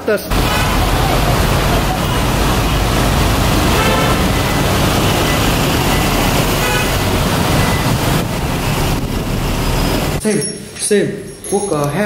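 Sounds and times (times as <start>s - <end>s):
street traffic rumble: 0.0s - 12.0s
car horn toot: 0.3s - 2.4s, 3.3s - 8.0s.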